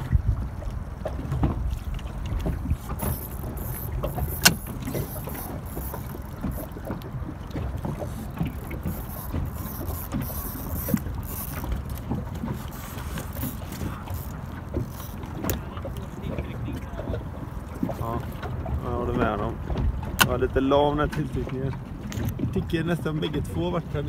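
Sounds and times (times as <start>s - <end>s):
small waves lapping against boat: 0.0s - 24.0s
wind buffeting microphone: 0.0s - 24.0s
sharp click: 4.0s - 5.0s.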